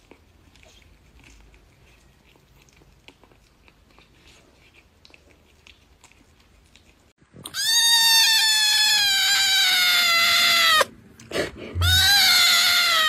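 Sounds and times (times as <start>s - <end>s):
cat chewing with faint crunching: 0.0s - 7.7s
kitten meowing: 7.5s - 10.9s, 11.8s - 13.0s.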